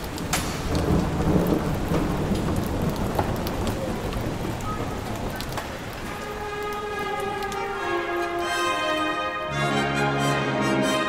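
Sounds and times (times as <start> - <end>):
low rumble of thunder: 0.0 - 6.3
rain falling: 0.0 - 11.0.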